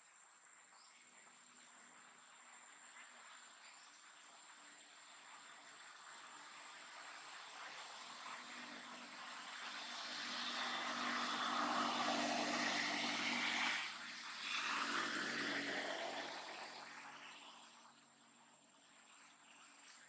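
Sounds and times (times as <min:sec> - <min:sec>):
passing engine hum: 0:06.6 - 0:18.0.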